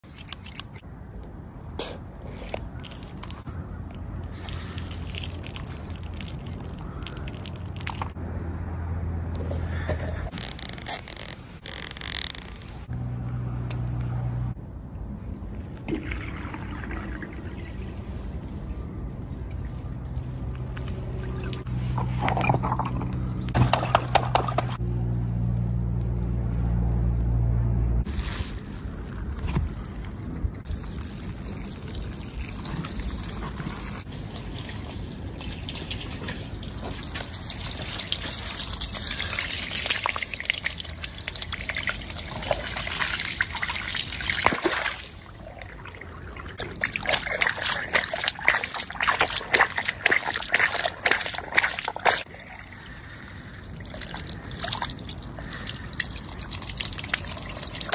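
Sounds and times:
gel beads clicking and squelching: 3.1s - 8.2s, 10.3s - 12.8s
sharp clicks: 10.3s - 13.0s
water rushing from hose: 28.1s - 57.9s.

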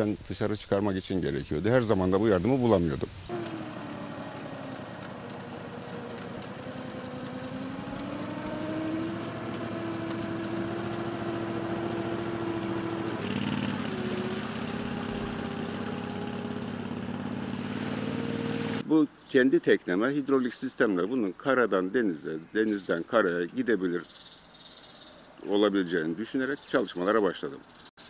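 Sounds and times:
boat engine running: 3.0s - 18.8s
outboard motor running: 3.2s - 18.8s.

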